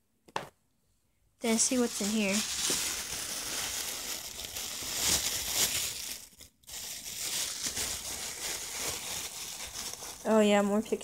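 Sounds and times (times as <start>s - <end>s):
plastic bag crinkling: 1.4s - 11.0s.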